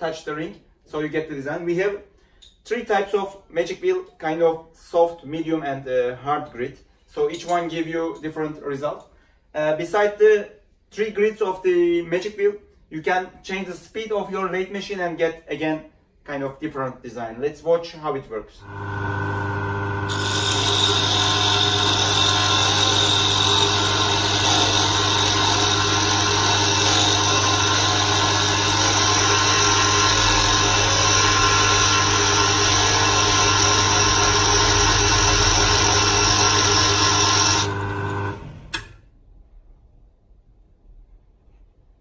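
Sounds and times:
electric motor humming: 18.6s - 38.8s
grinding wheel hissing on ring: 18.9s - 38.4s.

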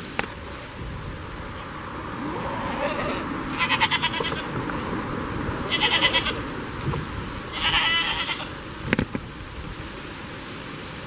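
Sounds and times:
goat bleating: 2.2s - 4.5s, 5.7s - 6.5s, 7.5s - 8.6s.

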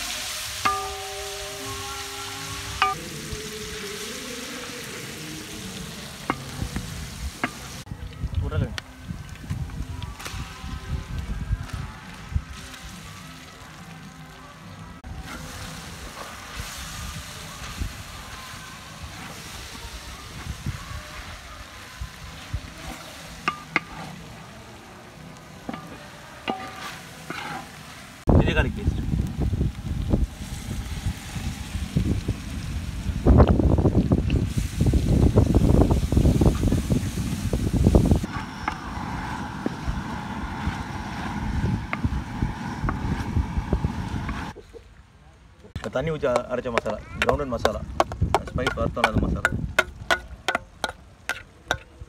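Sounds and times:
onions sizzling in hot oil: 0.0s - 14.3s, 15.0s - 44.6s
pan ringing: 0.6s - 3.0s
spatula scraping onions in pan: 25.8s - 28.0s
spatula knocking on metal pan: 46.8s - 51.0s.

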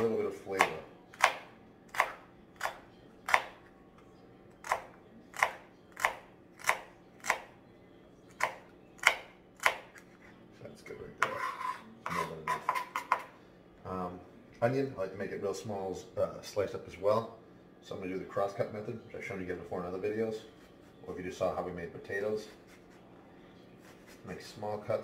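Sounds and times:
knife chopping on plastic board: 0.6s - 3.6s, 4.6s - 7.5s, 8.4s - 10.0s
knife scraping diced pieces: 11.2s - 13.2s.

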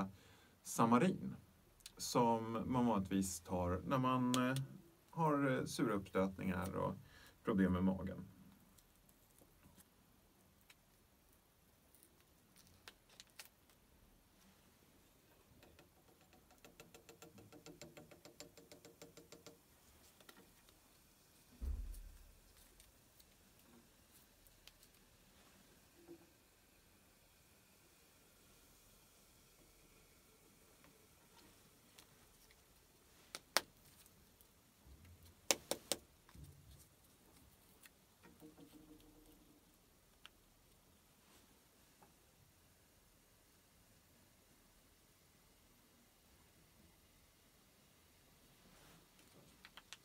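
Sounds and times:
sharp clicks and taps: 15.6s - 19.6s, 33.3s - 33.7s, 35.5s - 36.4s, 49.6s - 50.0s
soft low thumps: 21.6s - 22.4s.

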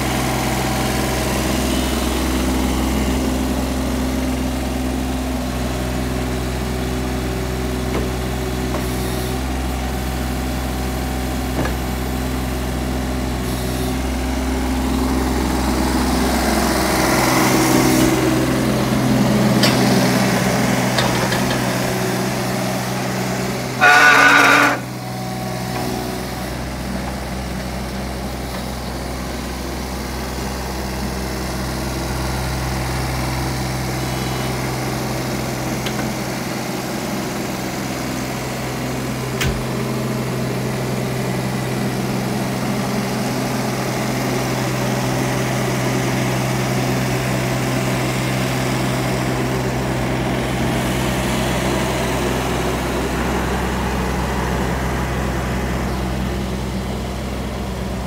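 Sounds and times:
small diesel engine running: 0.0s - 58.0s
loud beep: 23.8s - 24.9s.

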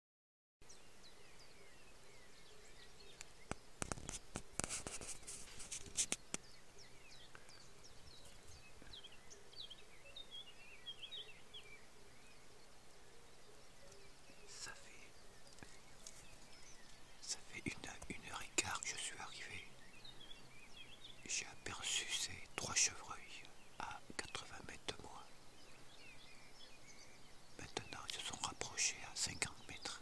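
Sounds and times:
faint rural background: 0.6s - 30.0s
small birds chirping: 0.6s - 30.0s
sharp clicks and rustling: 3.2s - 6.5s.

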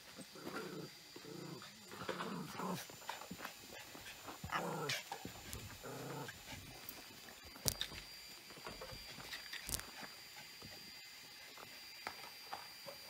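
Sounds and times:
dog growling: 0.2s - 3.3s, 3.9s - 6.6s.

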